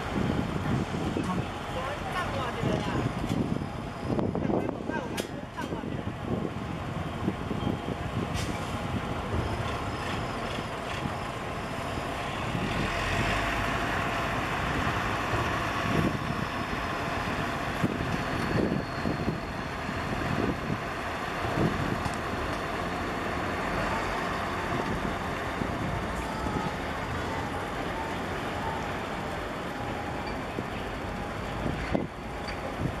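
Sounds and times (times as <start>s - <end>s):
road traffic passing: 0.0s - 33.0s.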